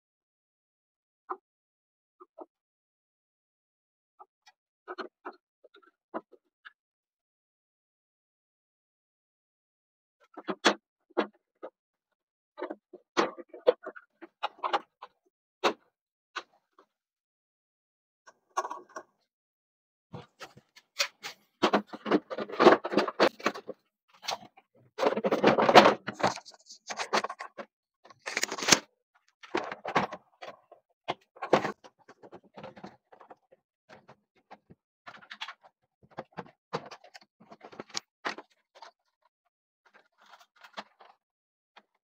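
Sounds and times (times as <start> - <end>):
plastic cover clicking and knocking: 21.6 - 24.4, 25.0 - 28.8.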